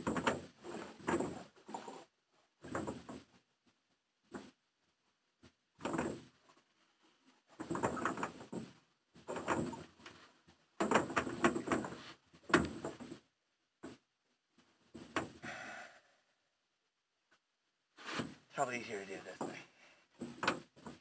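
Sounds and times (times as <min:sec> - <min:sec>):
oars creaking in oarlocks: 0:00.0 - 0:03.2, 0:07.6 - 0:10.2, 0:10.8 - 0:13.2.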